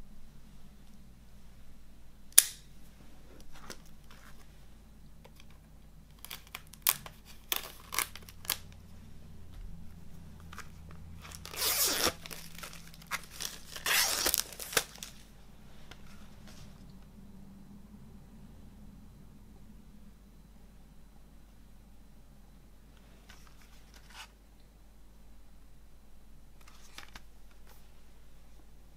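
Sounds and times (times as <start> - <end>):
sharp click: 2.4 - 2.7
plastic crinkling and tearing: 5.3 - 8.8, 10.4 - 15.3
knife slitting plastic wrap: 6.2 - 8.6, 11.2 - 15.2.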